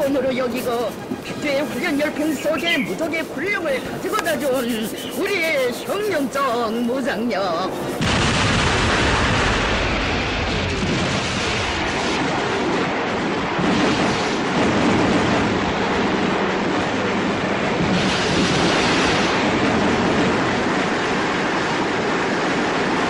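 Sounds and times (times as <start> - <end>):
rocket and artillery barrage roar: 8.0 - 20.4.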